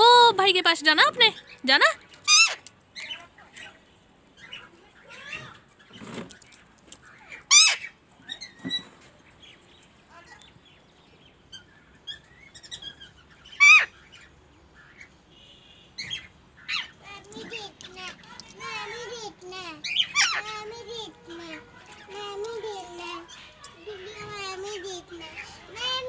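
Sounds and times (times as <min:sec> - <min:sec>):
parrot soft chirps and calls: 0:01.3 - 0:20.8
parrot harsh screeches: 0:02.2 - 0:02.6, 0:07.5 - 0:08.6, 0:13.6 - 0:13.9, 0:19.8 - 0:20.5.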